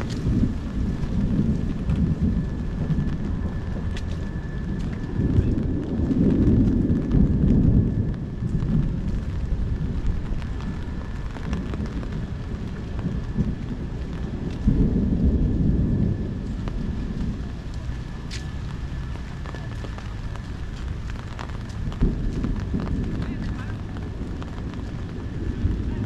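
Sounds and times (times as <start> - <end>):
low thunder rumbling: 0.0 - 26.0
steady rain: 0.0 - 26.0.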